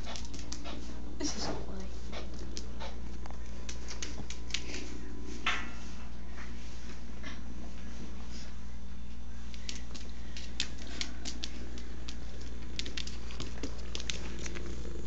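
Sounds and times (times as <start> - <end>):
steady low hum: 0.0 - 15.0
light clicks and taps on floor: 2.3 - 5.7, 9.4 - 14.7.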